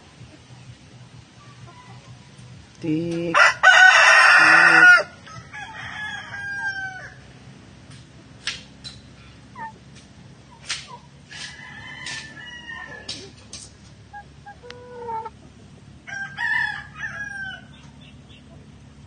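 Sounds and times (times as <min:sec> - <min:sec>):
chickens clucking: 0:00.0 - 0:16.4, 0:17.0 - 0:19.0
rooster crowing: 0:03.4 - 0:07.3, 0:11.3 - 0:13.2, 0:16.0 - 0:17.8.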